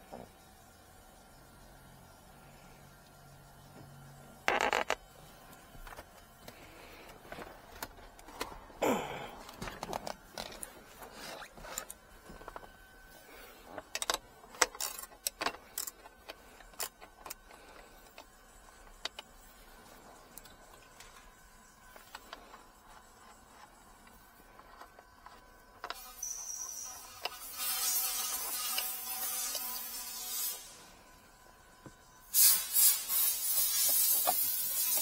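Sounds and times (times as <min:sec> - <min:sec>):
ratchet metallic clicks: 0:13.9 - 0:18.3.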